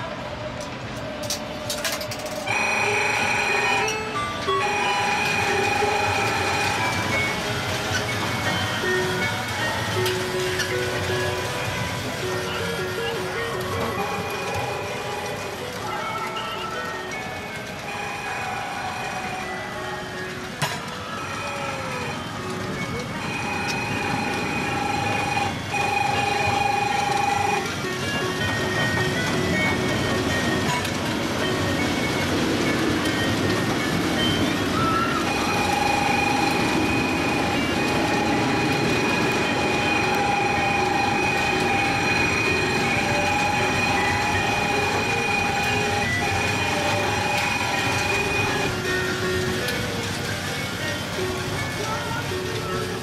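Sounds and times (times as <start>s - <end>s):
amusement park background noise: 0.0s - 53.0s
coin slot clicks: 1.0s - 2.8s
electronic ride tune: 2.3s - 53.0s.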